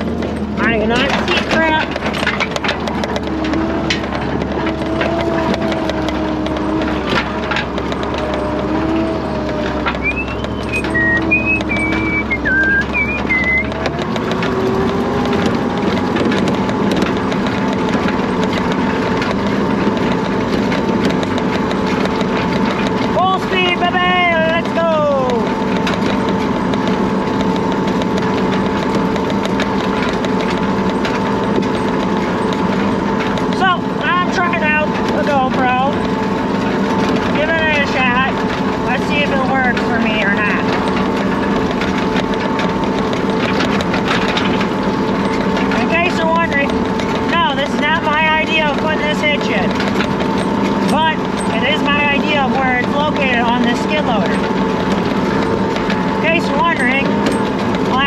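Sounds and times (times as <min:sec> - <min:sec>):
rattles and knocks of rack: 0:00.0 - 0:10.0, 0:24.6 - 0:58.0
drive whine: 0:00.0 - 0:58.0
engine drone: 0:00.0 - 0:58.0.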